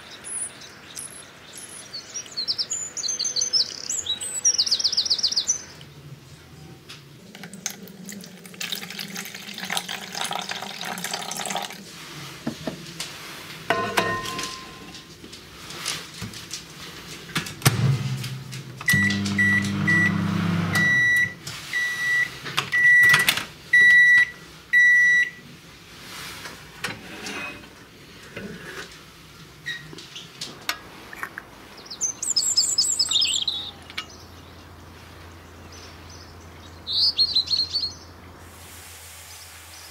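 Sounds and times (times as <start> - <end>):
birds chirping: 0.0 - 6.8, 31.7 - 38.2
microwave oven humming: 17.6 - 23.2
microwave keypad beeps: 18.9 - 25.4.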